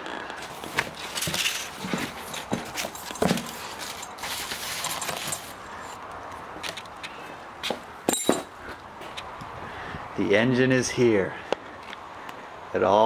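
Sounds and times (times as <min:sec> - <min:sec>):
cardboard scraping and rustling: 0:00.0 - 0:05.6.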